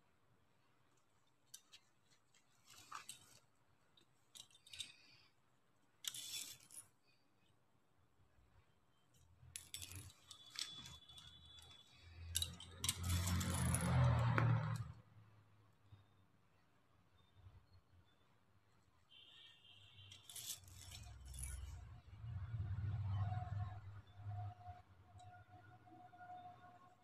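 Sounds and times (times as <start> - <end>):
artificial leaves rustling: 1.5 - 3.5, 6.0 - 6.9.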